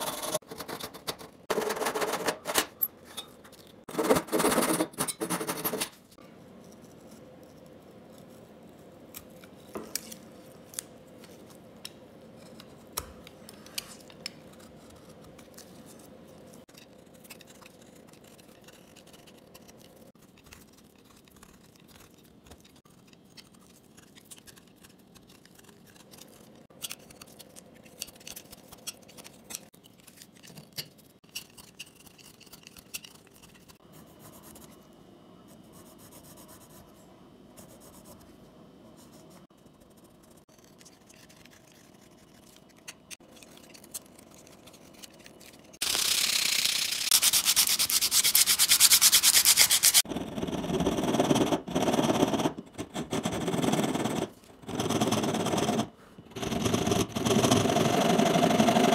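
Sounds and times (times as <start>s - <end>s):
knife whittling wood: 40.3s - 50.1s
hand saw cutting wood: 45.8s - 50.0s.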